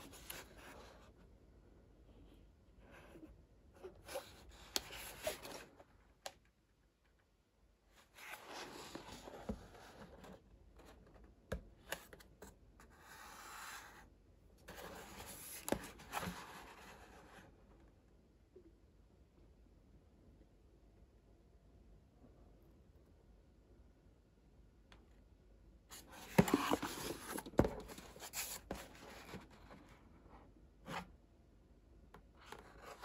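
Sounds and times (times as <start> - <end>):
cardboard rubbing and scraping: 25.9 - 29.9.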